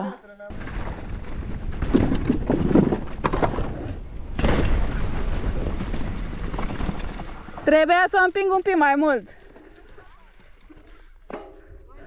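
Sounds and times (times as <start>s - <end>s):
bike knocking and rattling: 0.5s - 12.0s
bike tyres rumbling on dirt: 0.5s - 12.0s.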